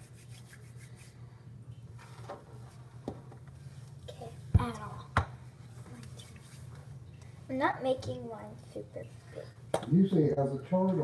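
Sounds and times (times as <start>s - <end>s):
low steady hum: 0.0s - 11.0s.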